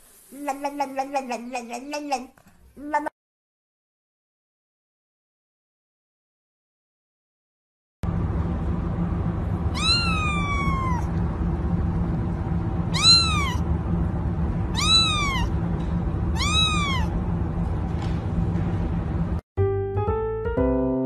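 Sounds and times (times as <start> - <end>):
steady low hum: 8.0 - 19.4
kitten meowing: 9.7 - 11.1, 12.9 - 13.6, 14.7 - 15.5, 16.3 - 17.1.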